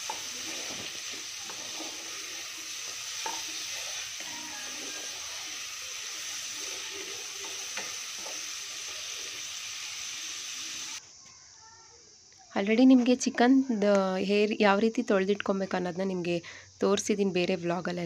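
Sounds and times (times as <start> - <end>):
wooden spatula scraping a pan: 0.0 - 5.2
vegetables sizzling in hot oil: 0.0 - 11.0.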